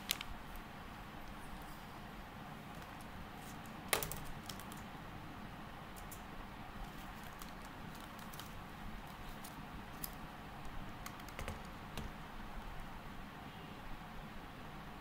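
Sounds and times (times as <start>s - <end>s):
steady background hiss: 0.0s - 15.0s
keyboard key clicks: 11.0s - 12.2s.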